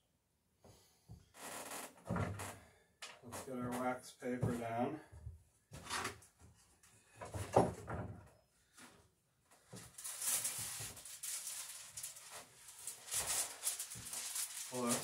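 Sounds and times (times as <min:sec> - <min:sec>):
wax paper crackling rustle: 0:09.6 - 0:15.0.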